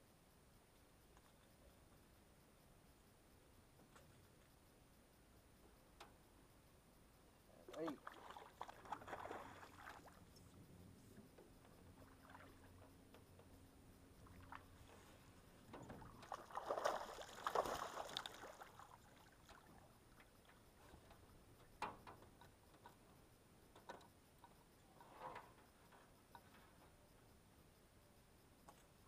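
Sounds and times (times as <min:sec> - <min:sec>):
fish splashing in water: 0:16.2 - 0:19.7.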